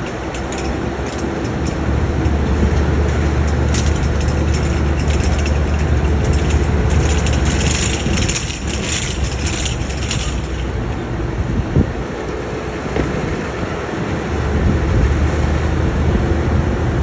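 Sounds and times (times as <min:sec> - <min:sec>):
metallic clicks and rattles: 0:00.0 - 0:11.0
diesel engine droning: 0:00.0 - 0:17.0.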